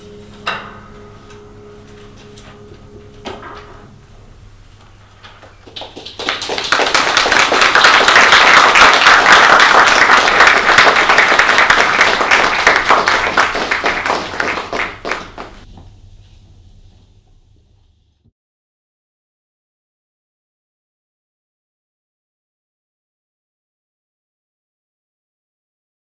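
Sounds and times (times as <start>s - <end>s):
audience applauding: 5.6s - 15.6s.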